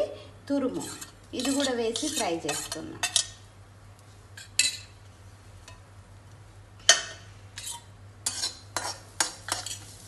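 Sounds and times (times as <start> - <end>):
food frying in fat: 0.6 - 3.4, 7.0 - 10.0
spatula scraping and stirring: 0.7 - 3.4, 7.0 - 10.0
metal spatula clanking on a pan: 0.8 - 3.4, 4.4 - 4.9, 6.9 - 9.8.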